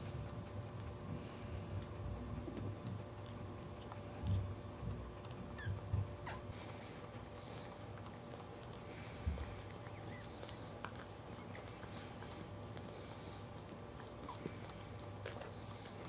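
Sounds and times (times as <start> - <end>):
puppy squeaking: 5.6 - 6.5.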